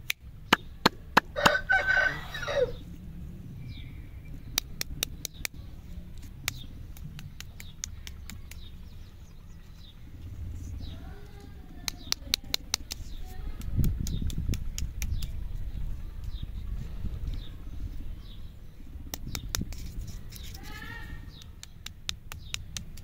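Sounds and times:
wrapped lollipops clicking and tapping: 6.2 - 8.7, 11.8 - 15.4, 19.1 - 23.0.

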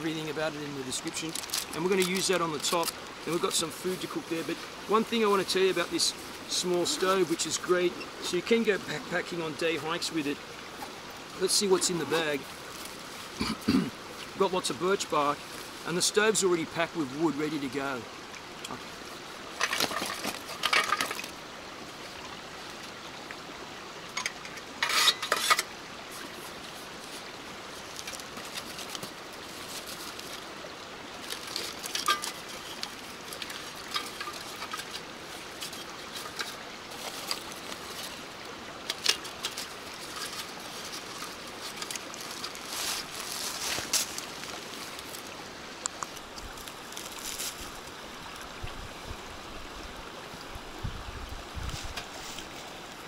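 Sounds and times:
stream running: 0.0 - 53.0
fabric pouch rustling: 39.5 - 45.2.

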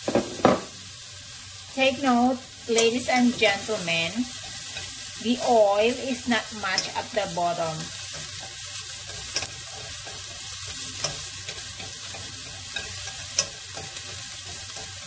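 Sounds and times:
shallots and garlic sizzling in oil: 0.0 - 15.0
utensil clicking against pot: 8.1 - 15.0.

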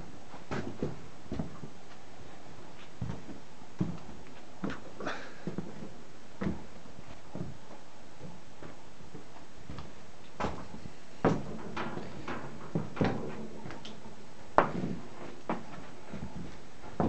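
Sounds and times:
footsteps on hard floor: 5.5 - 17.0.

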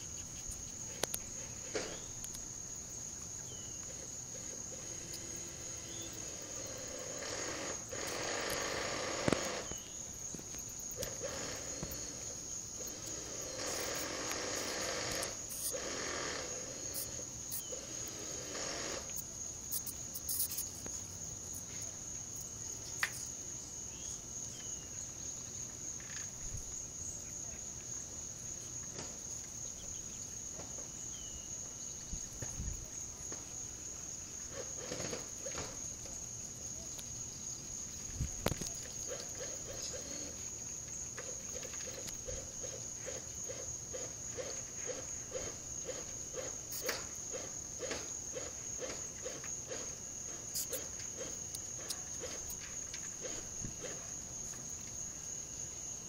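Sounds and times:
insects trilling: 0.0 - 56.0
sharp clicks: 7.5 - 9.8.

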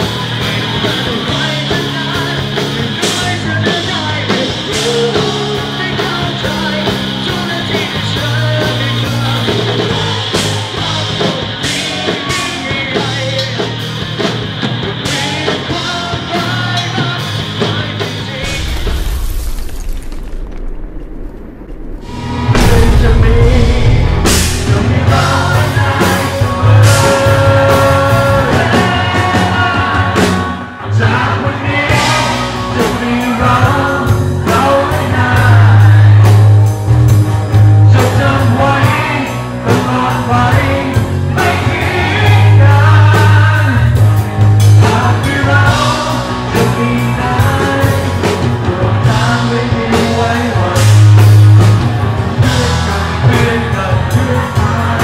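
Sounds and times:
lead voice singing: 0.0 - 19.6, 21.8 - 55.0
bass line: 0.0 - 55.0
drum beat: 21.0 - 30.5.

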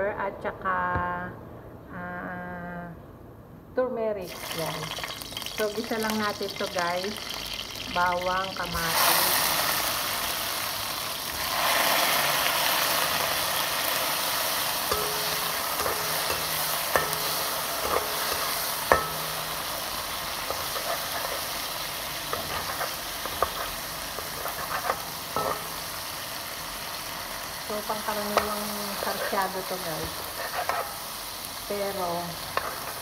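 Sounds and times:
vegetables sizzling in hot oil: 4.2 - 33.0
metal spatula scraping pan: 14.8 - 26.0, 28.3 - 31.2, 32.4 - 33.0.

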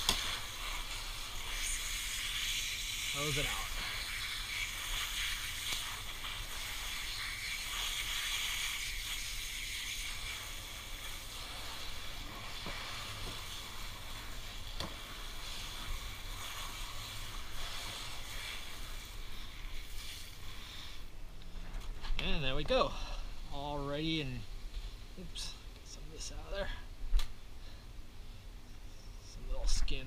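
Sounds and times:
garden hose spraying water: 0.0 - 21.1.

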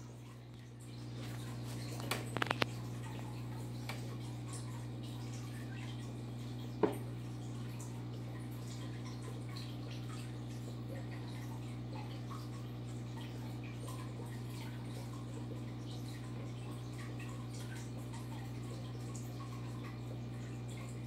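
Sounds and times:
water trickling and dripping: 0.0 - 21.0.

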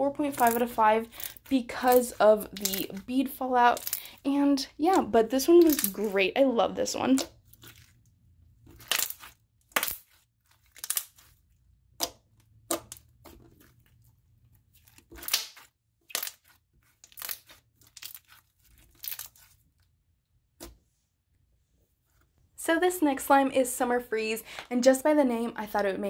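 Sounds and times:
slime crackling and popping: 0.3 - 3.2, 3.8 - 4.2, 4.9 - 6.2, 6.8 - 14.0, 14.6 - 19.7.

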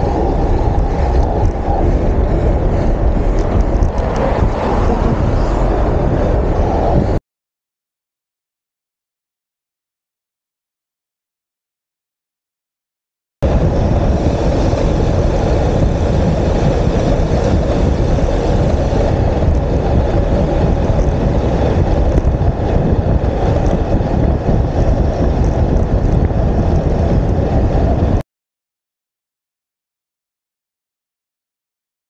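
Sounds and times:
wind rushing over microphone: 0.0 - 7.2, 13.4 - 28.2.

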